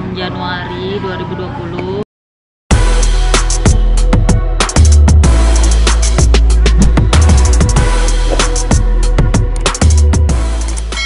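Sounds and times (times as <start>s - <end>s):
electronic music with heavy bass: 2.7s - 11.0s.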